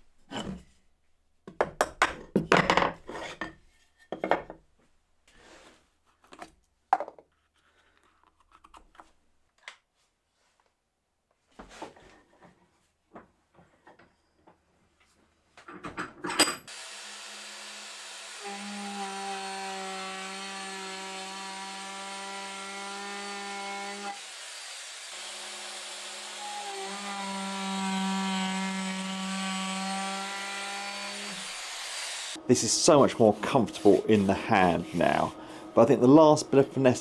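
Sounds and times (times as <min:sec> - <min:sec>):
trim router whining: 0:16.7 - 0:32.4.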